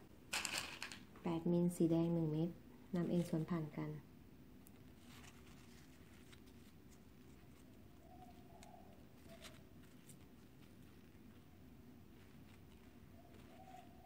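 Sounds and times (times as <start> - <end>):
plastic beads clicking: 0.3 - 1.0
dove cooing: 8.0 - 9.8, 13.0 - 14.0.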